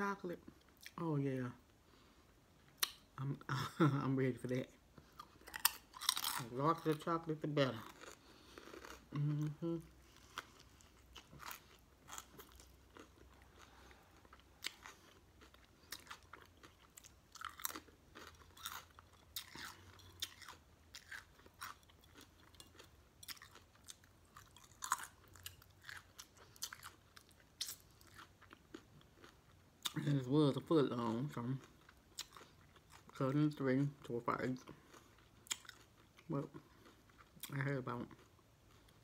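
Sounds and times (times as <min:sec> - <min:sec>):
person chewing crunchy sandwich: 0:05.0 - 0:30.0, 0:31.6 - 0:33.2, 0:34.6 - 0:39.0.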